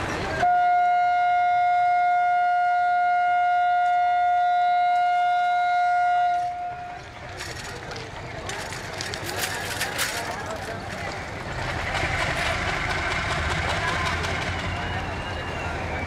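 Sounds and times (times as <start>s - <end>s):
diesel locomotive horn blast: 0.4s - 7.1s.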